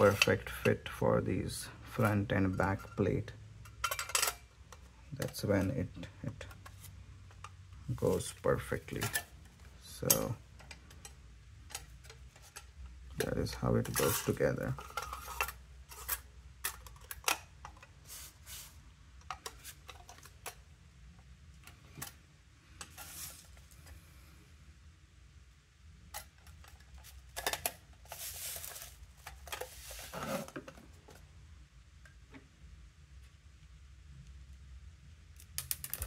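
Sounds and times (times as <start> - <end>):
metal parts clicking and tapping: 1.9 - 5.8, 8.9 - 17.9, 35.4 - 36.0
scraping and rustling: 3.8 - 20.6, 21.8 - 24.0, 26.2 - 31.3.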